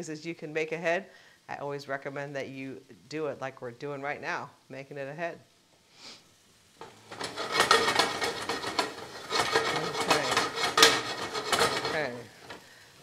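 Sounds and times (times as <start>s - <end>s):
spoon stirring vegetables in skillet: 6.4s - 13.0s.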